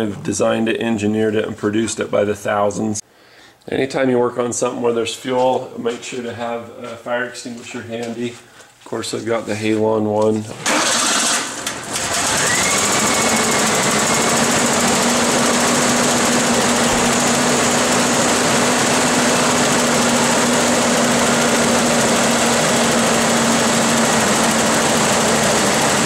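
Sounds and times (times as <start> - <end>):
car engine starting and idling: 10.6 - 26.0.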